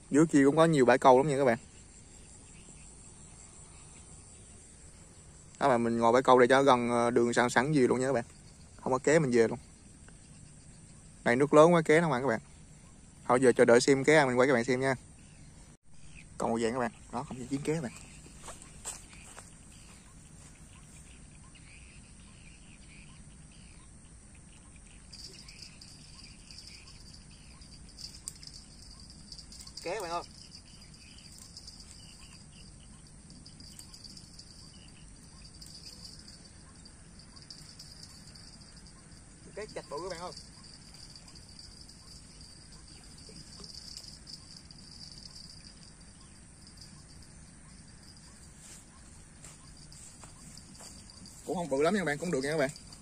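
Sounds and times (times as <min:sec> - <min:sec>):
insect chirps: 0:00.0 - 0:53.0
high-pitched insect buzz: 0:17.3 - 0:53.0.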